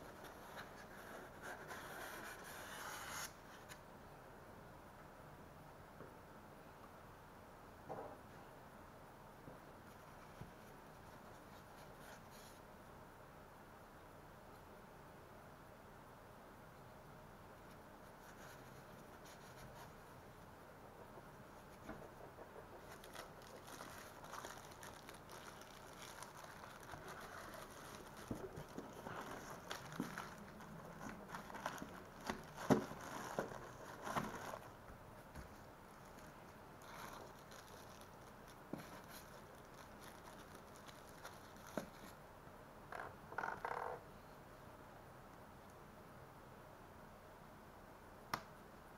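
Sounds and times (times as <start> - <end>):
plastic wrap rustling: 22.6 - 34.8, 35.4 - 42.2.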